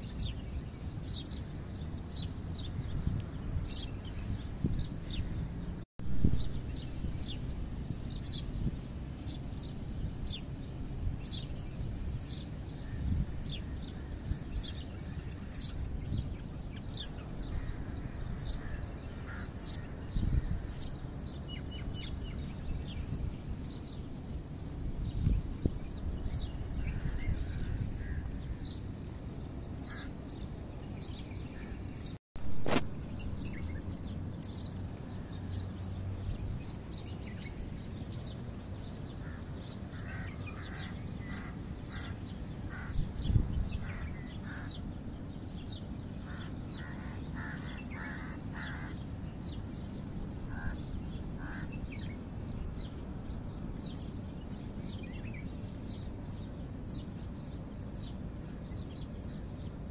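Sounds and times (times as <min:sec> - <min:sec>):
birds chirping: 0:00.0 - 0:59.9
crows cawing: 0:39.2 - 0:43.0, 0:46.3 - 0:49.1, 0:50.5 - 0:50.8, 0:51.4 - 0:51.8.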